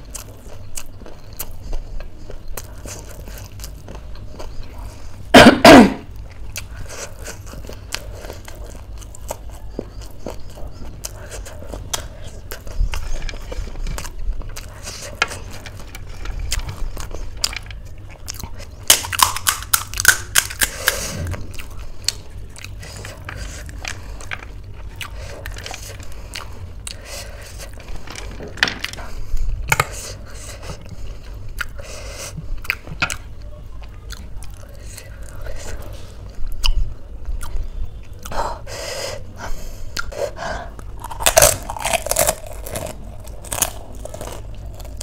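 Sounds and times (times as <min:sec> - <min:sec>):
crisp shells crunching: 0:12.6 - 0:21.0, 0:40.9 - 0:45.0.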